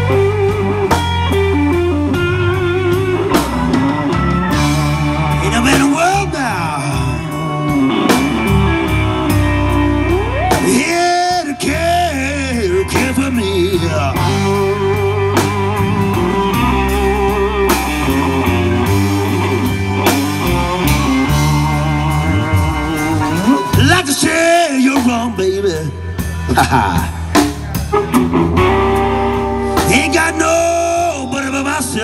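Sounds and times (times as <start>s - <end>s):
electric guitar lead: 0.0s - 32.0s
live blues band playing: 0.0s - 32.0s
person singing: 5.2s - 7.7s, 10.4s - 15.2s, 29.4s - 32.0s.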